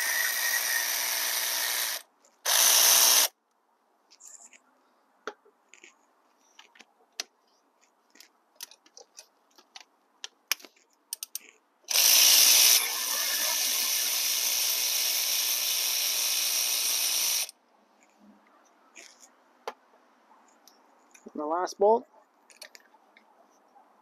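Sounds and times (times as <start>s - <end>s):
electric ratchet motor running: 0.0s - 3.3s, 11.9s - 17.5s.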